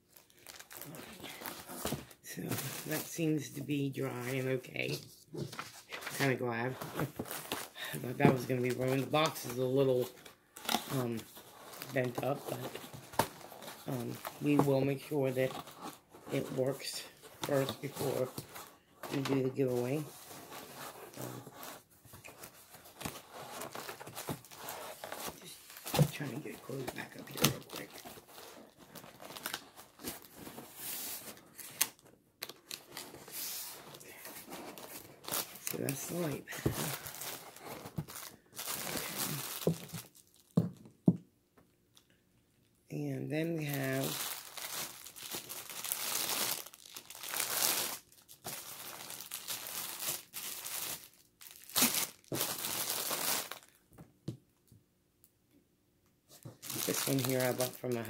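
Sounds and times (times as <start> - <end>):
plastic packaging crinkling: 0.0 - 3.2, 4.0 - 40.7, 43.6 - 53.8, 56.5 - 58.0
rustling: 4.1 - 40.5.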